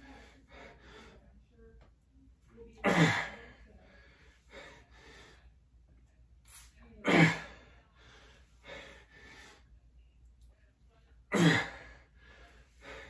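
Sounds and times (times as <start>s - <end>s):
man breathing softly: 3.8s - 5.6s, 7.7s - 9.8s, 11.8s - 13.0s.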